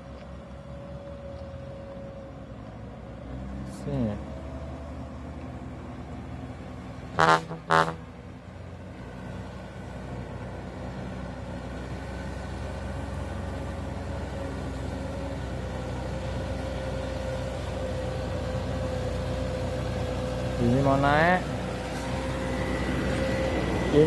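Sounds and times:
truck engine climbing hill: 0.0 - 24.0
horn honks: 7.2 - 8.0.

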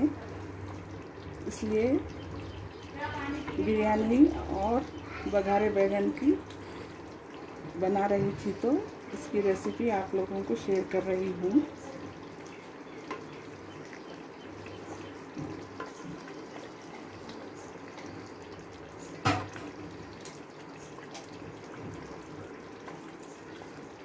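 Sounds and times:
liquid pouring and dripping: 0.0 - 24.0
ladle knocking on pot: 19.2 - 19.6.

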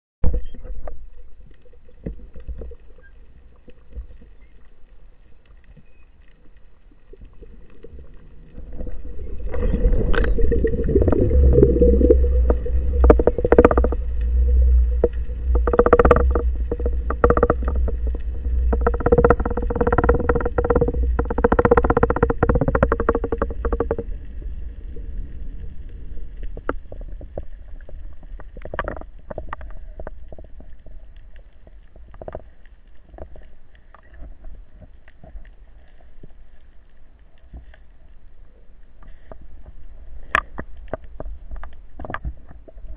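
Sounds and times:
underwater water rumbling: 0.2 - 42.9
motor hum through water: 0.4 - 37.9
clicks: 9.5 - 24.1.

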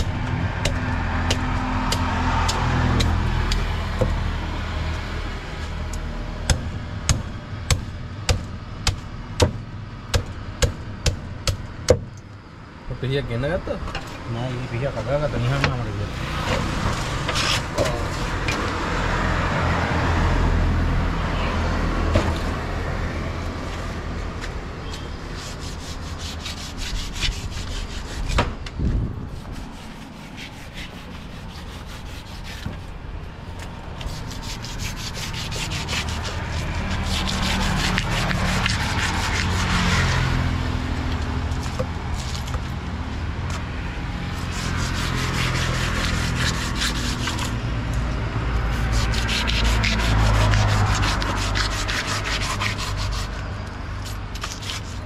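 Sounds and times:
knife scraping fish: 34.0 - 40.1, 44.4 - 47.6, 48.7 - 53.4, 54.0 - 55.0.

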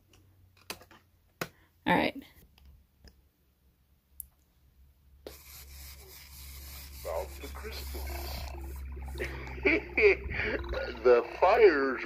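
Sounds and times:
faint recording sound: 0.0 - 12.0
tape hiss: 5.2 - 12.0
low hum: 6.1 - 12.0.

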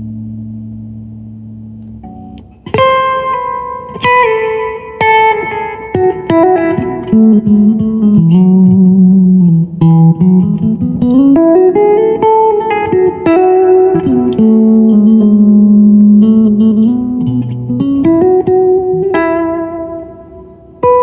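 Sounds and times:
electric guitar melody: 0.0 - 21.0.

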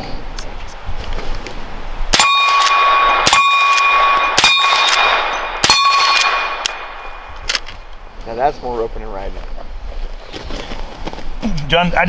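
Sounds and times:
steel target ringing: 2.1 - 7.4
suppressed rifle shots: 2.1 - 7.8.

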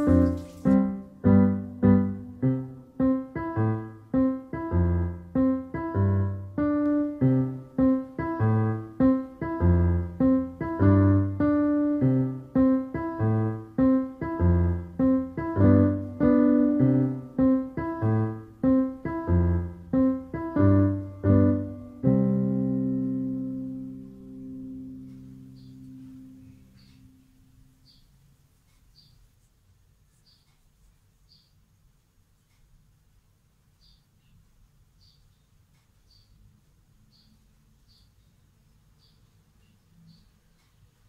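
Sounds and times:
piano music: 0.0 - 28.0.

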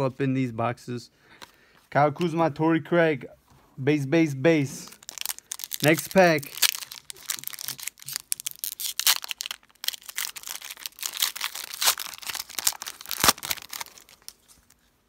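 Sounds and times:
foil wrapper crinkling and tearing: 4.9 - 14.9.

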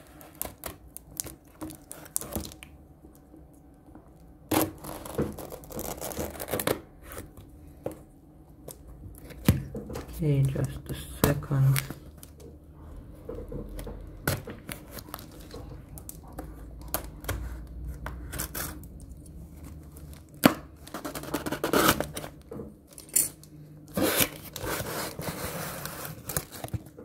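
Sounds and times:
tape and cardboard tearing: 4.5 - 7.2, 18.2 - 18.9, 20.1 - 22.4, 23.9 - 26.8.

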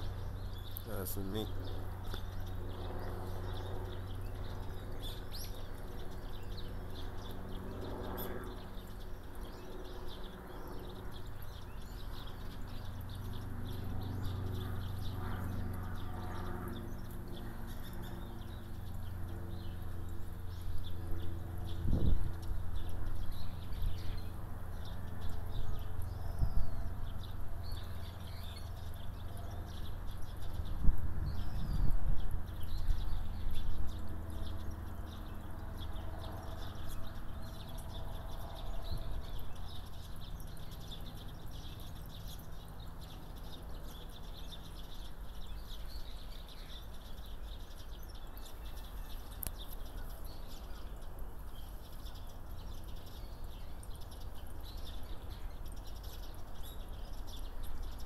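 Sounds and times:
small birds chirping faintly: 0.0 - 58.0
steady low hum: 0.0 - 58.0.

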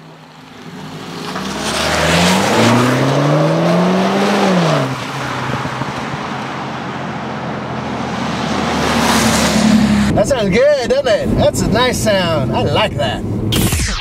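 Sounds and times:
car engine passing by: 0.3 - 10.3.

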